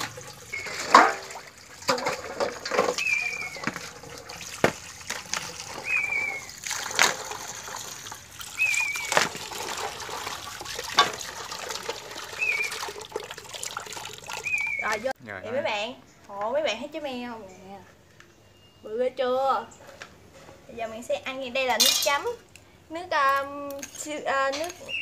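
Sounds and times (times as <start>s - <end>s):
tap water splashing into metal basin: 0.0s - 15.1s
water sloshing: 0.0s - 15.1s.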